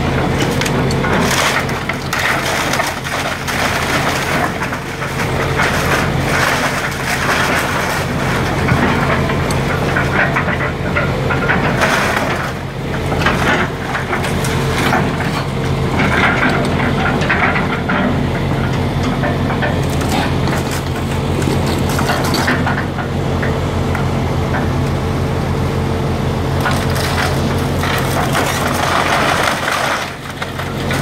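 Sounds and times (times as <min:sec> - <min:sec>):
lumber cracking and splintering: 0:00.0 - 0:23.1, 0:26.5 - 0:31.0
excavator diesel engine: 0:00.0 - 0:31.0
debris crashing down: 0:00.4 - 0:17.9, 0:26.6 - 0:31.0.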